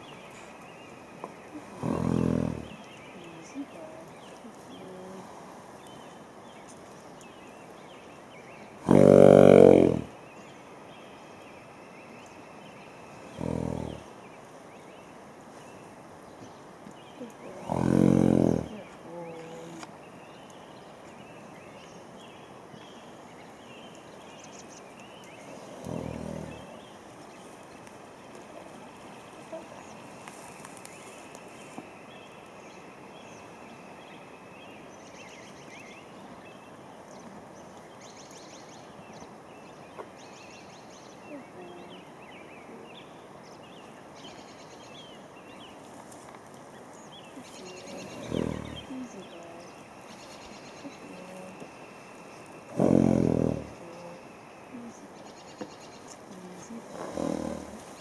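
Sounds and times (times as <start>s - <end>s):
small birds chirping: 0.0s - 58.0s.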